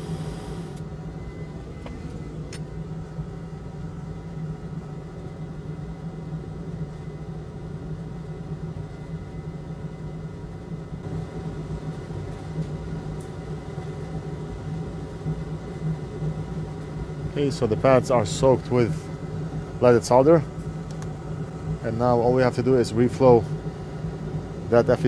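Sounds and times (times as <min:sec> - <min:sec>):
electric fan humming: 0:00.0 - 0:01.2, 0:10.9 - 0:25.0.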